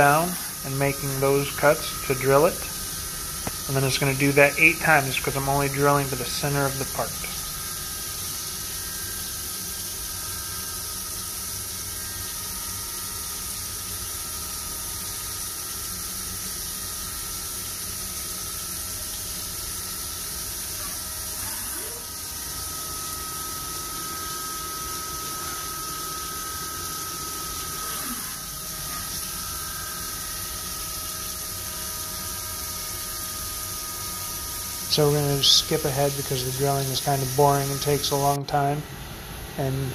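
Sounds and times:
spindle whine: 0:00.0 - 0:09.5, 0:20.8 - 0:31.3, 0:32.8 - 0:39.9
coolant spray hiss: 0:00.0 - 0:38.8.

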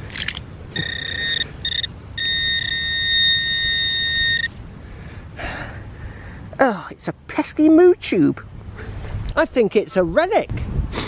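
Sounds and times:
metal detector beeping tone: 0:00.7 - 0:04.6.

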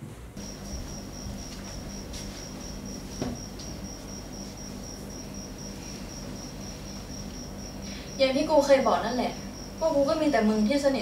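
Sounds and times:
cricket trilling: 0:00.4 - 0:11.0
soft thump: 0:03.2 - 0:03.5.

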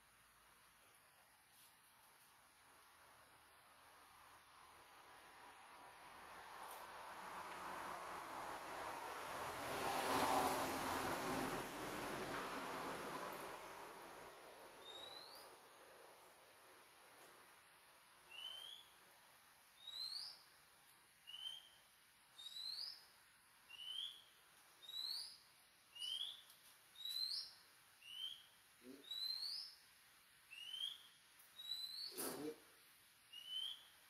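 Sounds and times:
bird whistling calls: 0:14.8 - 0:15.5, 0:18.3 - 0:19.0, 0:19.8 - 0:20.4, 0:21.3 - 0:21.8, 0:22.4 - 0:23.0, 0:23.7 - 0:25.4, 0:26.0 - 0:29.8, 0:30.5 - 0:32.2, 0:33.3 - 0:33.9.

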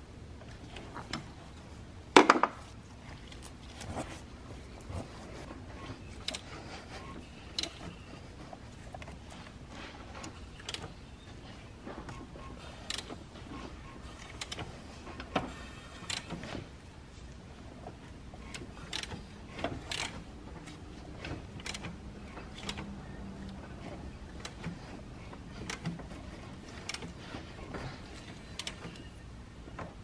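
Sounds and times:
engine clicks and light knocks: 0:04.6 - 0:30.0.

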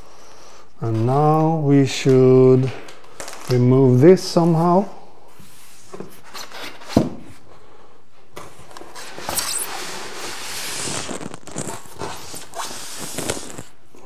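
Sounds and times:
packing scraping and rustling: 0:08.4 - 0:13.8.

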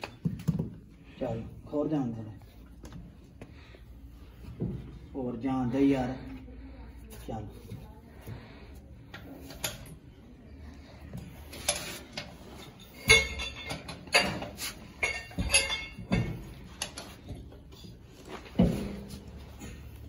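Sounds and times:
metal clanks with ringing: 0:12.6 - 0:17.0.

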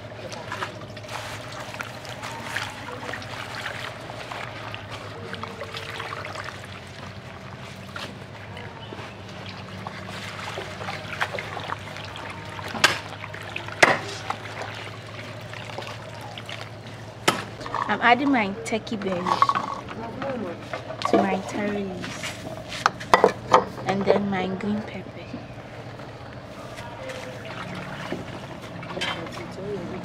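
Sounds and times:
hands swishing leaves in water: 0:00.0 - 0:17.6, 0:21.3 - 0:23.1, 0:26.5 - 0:30.0
water trickling and splashing: 0:00.0 - 0:24.0, 0:25.6 - 0:30.0
steady low hum: 0:00.0 - 0:30.0.

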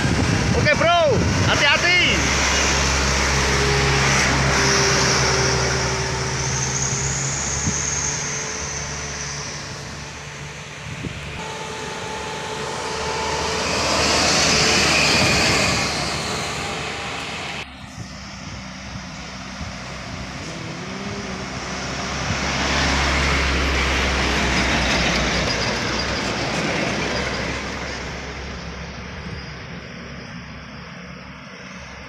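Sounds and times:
truck diesel engine passing: 0:00.0 - 0:32.0
car passing: 0:01.3 - 0:32.0
vehicle passing: 0:01.4 - 0:25.8.

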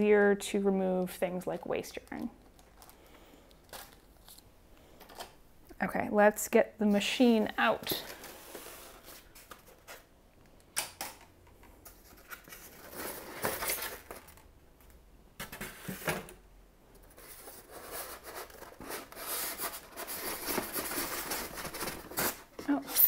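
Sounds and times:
foam packing scraping and rubbing: 0:17.2 - 0:23.0.

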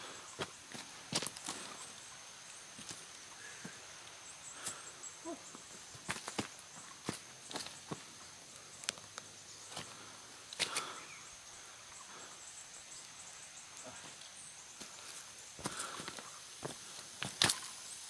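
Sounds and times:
footsteps on forest trail: 0:00.0 - 0:12.3, 0:13.8 - 0:18.0
high insect drone: 0:00.0 - 0:18.0
leaves rustling: 0:00.0 - 0:18.0
twigs snapping: 0:08.8 - 0:09.3, 0:17.2 - 0:17.7.

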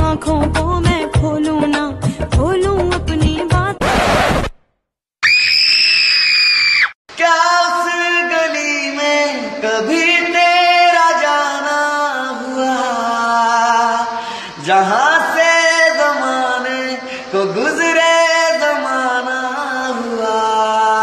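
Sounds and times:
high-pitched scream: 0:05.2 - 0:07.0.

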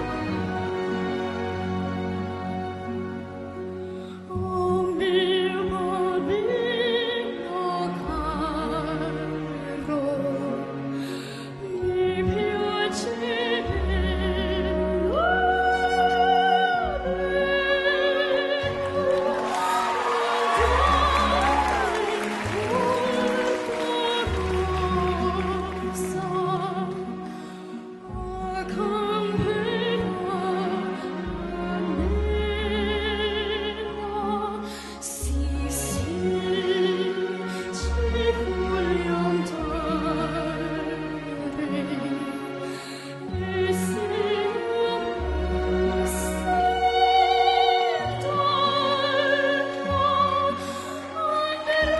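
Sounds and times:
orchestral accompaniment: 0:00.0 - 0:51.9
girl singing operatic soprano: 0:04.2 - 0:10.8, 0:11.6 - 0:42.7, 0:43.3 - 0:51.9
girl singing operatically: 0:11.7 - 0:27.2.

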